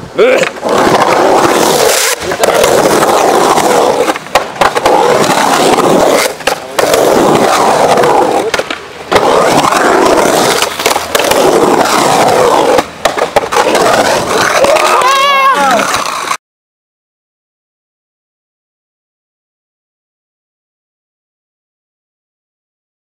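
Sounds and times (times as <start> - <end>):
skateboard wheels rolling on concrete: 0.0 - 16.4
skateboard knocking on concrete: 0.4 - 16.4.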